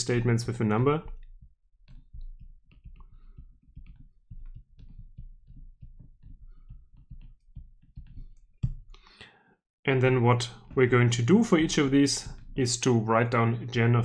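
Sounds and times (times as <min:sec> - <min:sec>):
stylus tapping on tablet: 0:01.0 - 0:09.0.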